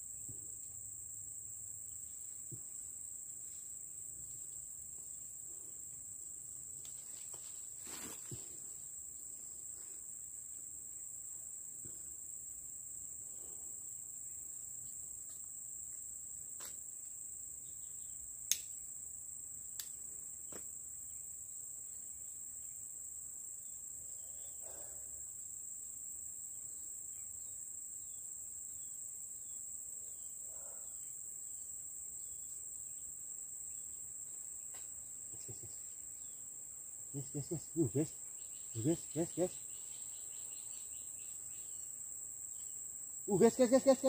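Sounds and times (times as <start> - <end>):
insects droning: 0.0 - 44.0.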